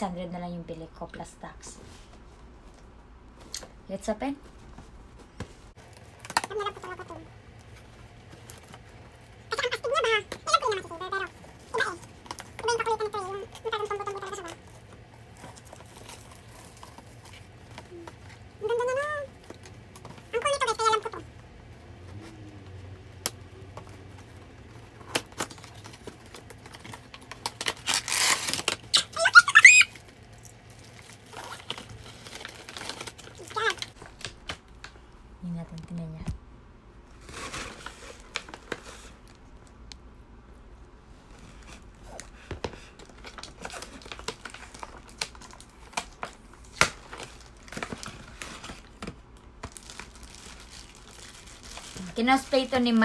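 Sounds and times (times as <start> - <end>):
box and plastic packaging rustling: 1.9 - 35.2, 37.1 - 39.9, 41.0 - 53.0
high squeaks: 28.9 - 30.0.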